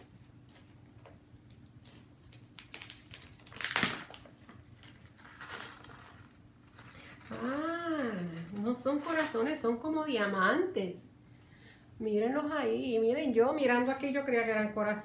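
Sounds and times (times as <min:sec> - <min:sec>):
plastic bag crinkling: 0:01.5 - 0:09.6.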